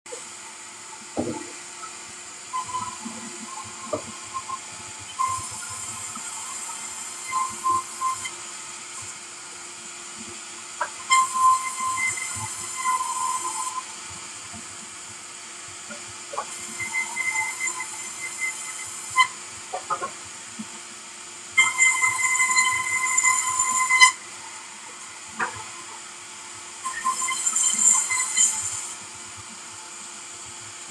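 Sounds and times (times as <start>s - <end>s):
sawmill saw humming: 0.1s - 30.9s
timber knocks: 1.2s - 1.5s
saw blade cutting wood: 10.8s - 13.9s, 15.9s - 20.2s, 21.6s - 24.2s, 25.0s - 26.0s, 26.8s - 29.0s.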